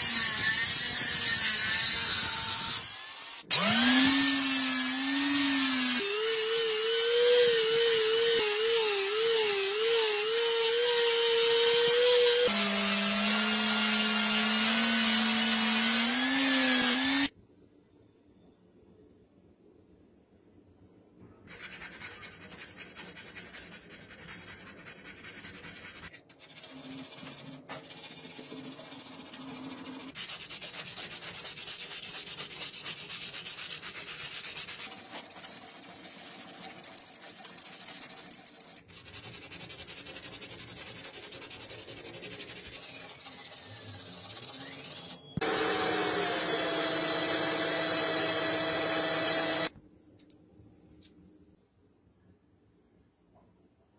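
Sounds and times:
electric drill whining: 2.8 - 6.0, 45.4 - 49.7
sanding and filing wood: 21.5 - 45.1.

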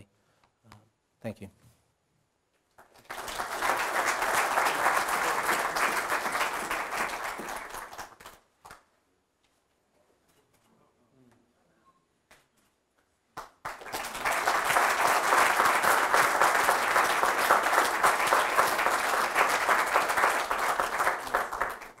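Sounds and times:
audience applauding: 2.8 - 8.8, 13.4 - 22.0.

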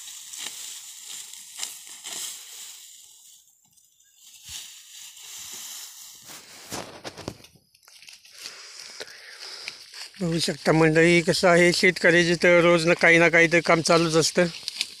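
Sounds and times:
dry stalks rustling and crackling: 0.0 - 15.0
stalks snapping: 14.5 - 15.0.

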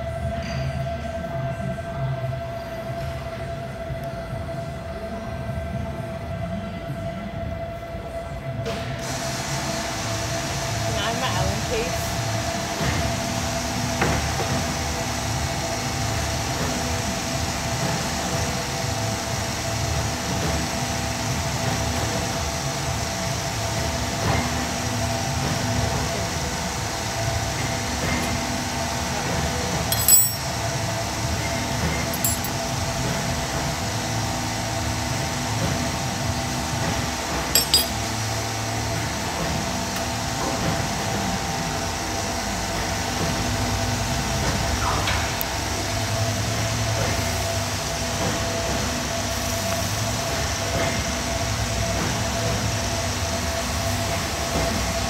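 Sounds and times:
workshop hum: 0.0 - 55.0
metal tools clinking on steel: 29.9 - 30.6, 32.0 - 32.6, 37.6 - 38.1.

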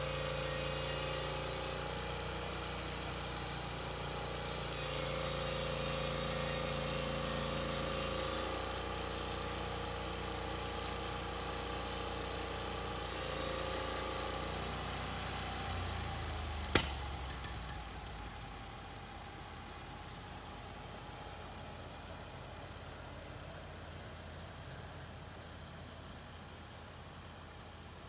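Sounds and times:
sharp knock: 16.7 - 17.8.

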